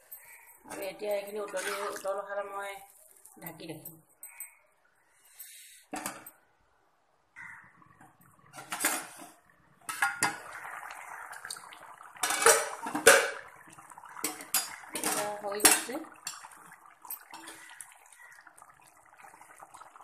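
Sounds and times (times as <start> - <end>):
curry bubbling: 0.1 - 3.7, 7.4 - 20.0
lid and ladle clanking on wok: 12.2 - 13.5, 14.2 - 16.0.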